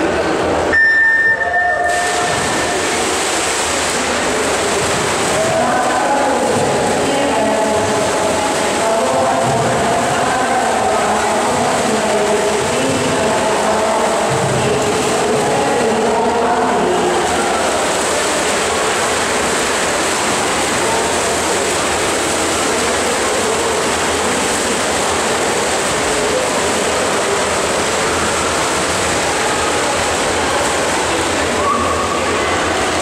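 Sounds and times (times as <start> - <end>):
swimmers splashing water: 0.0 - 33.0.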